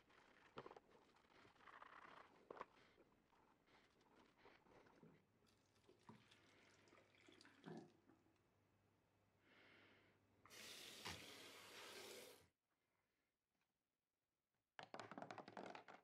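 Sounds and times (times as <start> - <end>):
water pouring into sink drain: 5.4 - 8.0, 10.5 - 12.4.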